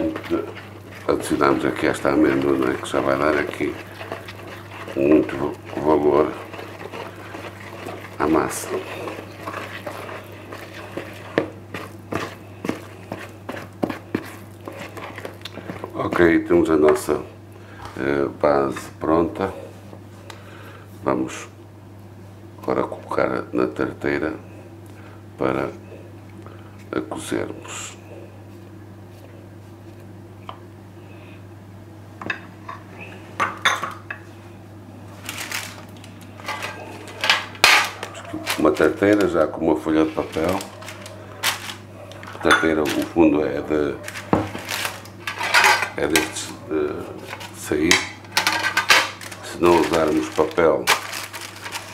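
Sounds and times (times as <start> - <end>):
low steady hum: 0.0 - 51.9
dishes and utensils clinking: 42.2 - 43.2, 44.1 - 46.4, 47.9 - 51.9.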